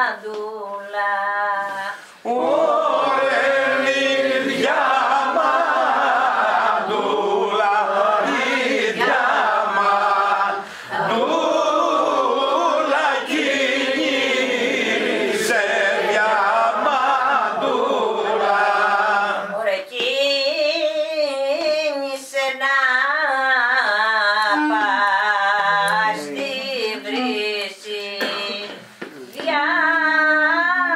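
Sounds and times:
voices singing together: 0.0s - 30.9s.

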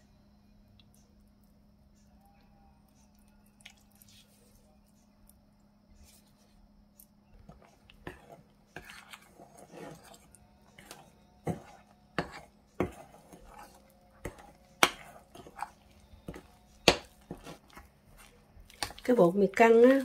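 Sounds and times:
utensil scraping glass bowl: 7.5s - 20.0s.

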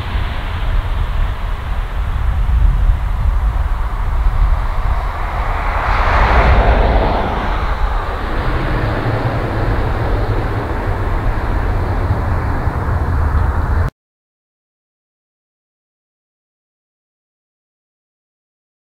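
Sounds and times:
steady low rumble: 0.0s - 13.9s
turboprop engine and propeller noise: 0.0s - 13.9s.

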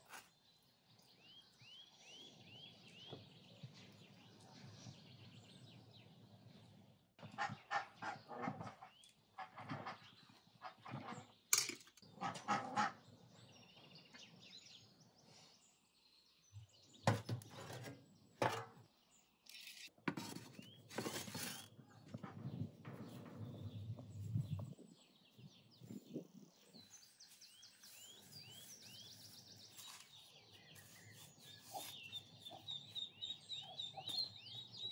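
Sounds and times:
metal pan knocking and scraping: 17.1s - 18.8s.

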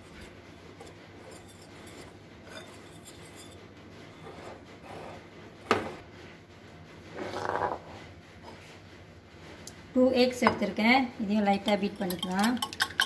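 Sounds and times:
whisk scraping in glass bowl: 0.0s - 5.2s, 11.5s - 13.0s.

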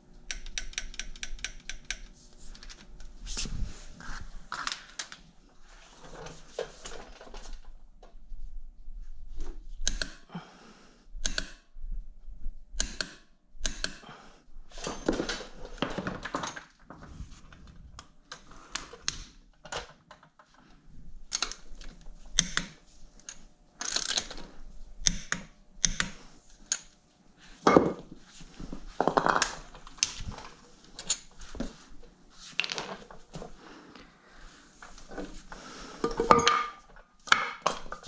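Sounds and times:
metallic clicks of hand tools: 0.3s - 2.2s, 9.8s - 10.3s, 11.2s - 11.6s, 12.8s - 14.0s, 21.3s - 24.4s, 25.0s - 27.0s.

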